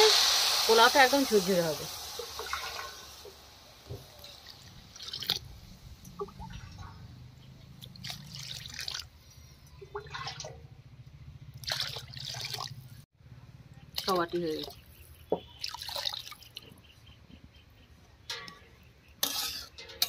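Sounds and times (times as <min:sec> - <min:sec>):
water pouring into a pan: 0:00.0 - 0:05.4, 0:11.6 - 0:12.8.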